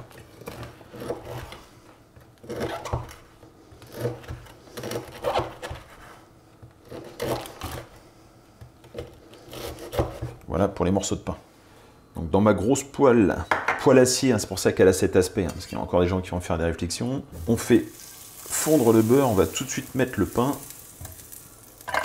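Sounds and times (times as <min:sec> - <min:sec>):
knife sawing through bread crust: 0:03.8 - 0:06.2, 0:06.8 - 0:07.9, 0:09.0 - 0:10.3.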